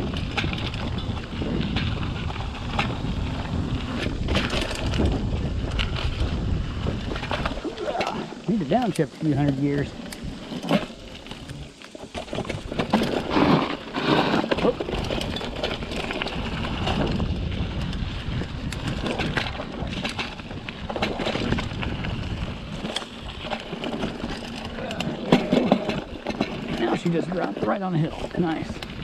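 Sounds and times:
bike rattling over bumps: 0.0 - 29.0
bike tyres on loose dirt: 0.0 - 29.0.

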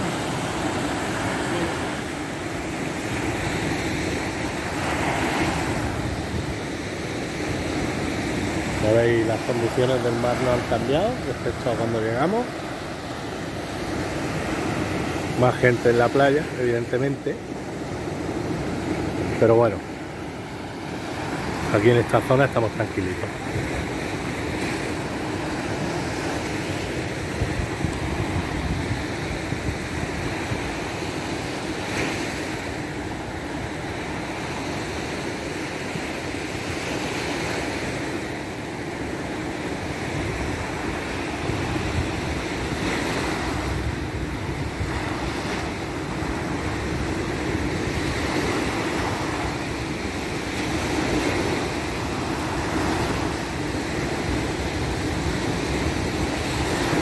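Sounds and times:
waves breaking on beach: 0.0 - 57.0
wind buffeting microphone: 27.2 - 30.8.

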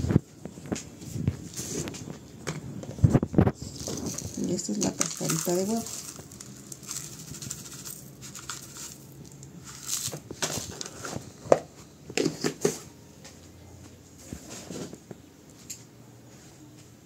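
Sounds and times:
crushed eggshell pouring: 3.6 - 10.8.

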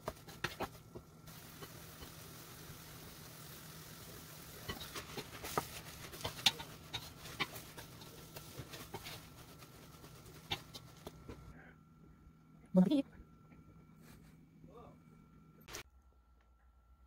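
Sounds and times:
faint steady hum: 0.0 - 17.0
wooden spatula scraping metal pan: 4.6 - 11.1.

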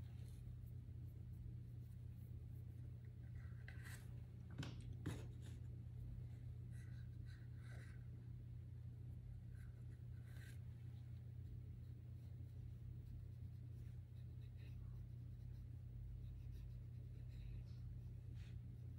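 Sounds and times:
steady low hum: 0.0 - 18.9
drawing strokes scratching on paper: 9.5 - 18.9.

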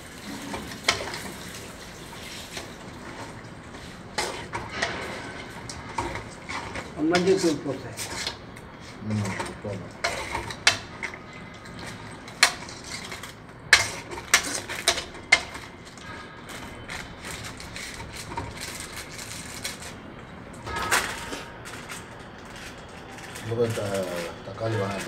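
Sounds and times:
spoon scraping metal pot: 4.1 - 8.4, 11.8 - 15.7.

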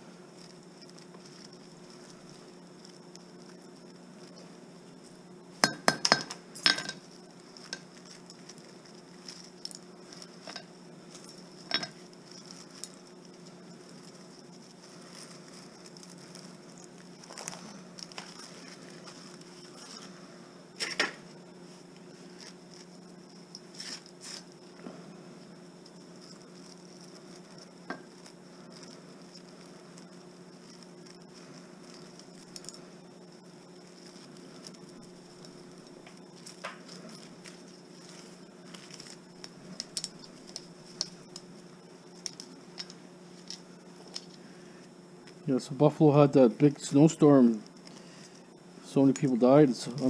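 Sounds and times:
faint steady hum: 0.0 - 50.0
small hard parts clinking: 5.6 - 18.4.

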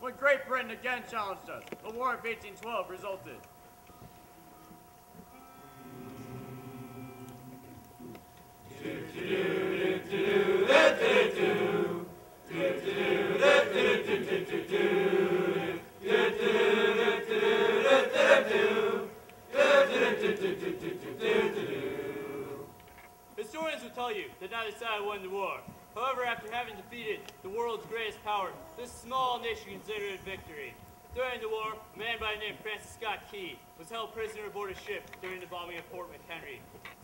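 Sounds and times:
choir singing: 5.3 - 7.8, 8.6 - 22.7.

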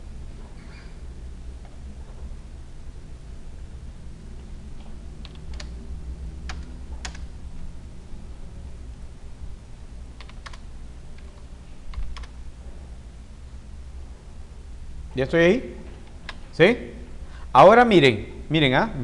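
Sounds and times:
steady low hum: 0.0 - 19.0
computer mouse clicks: 4.8 - 5.8, 6.5 - 7.3, 10.2 - 10.6, 11.2 - 12.4.

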